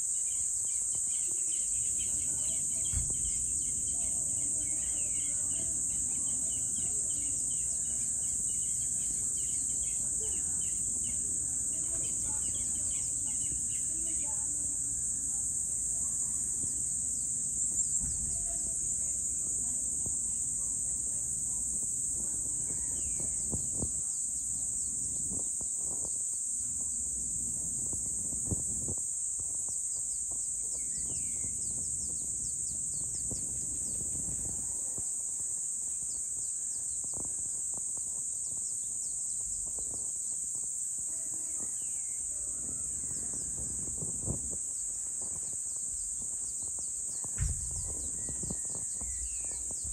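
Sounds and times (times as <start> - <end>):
insects buzzing: 0.0 - 49.9
bird chirps: 0.1 - 14.2, 29.9 - 34.0, 46.0 - 49.9.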